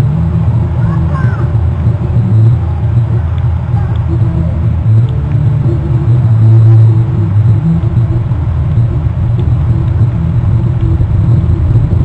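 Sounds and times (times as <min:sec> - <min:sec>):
low rumble with droning hum: 0:00.0 - 0:12.0.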